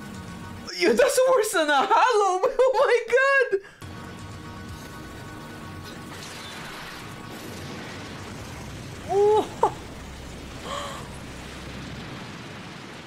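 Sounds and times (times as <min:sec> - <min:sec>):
wordless cry of shock: 0:09.1 - 0:09.8.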